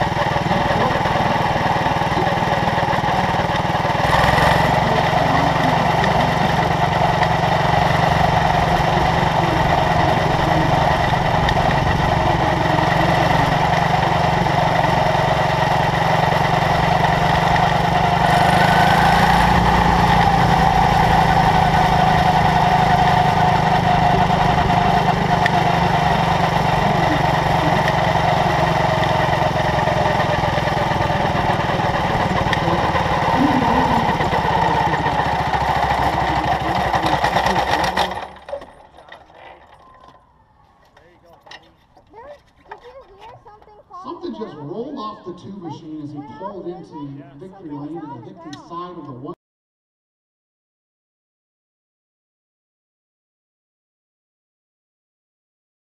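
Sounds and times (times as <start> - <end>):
small race car engine running: 0.0 - 43.6.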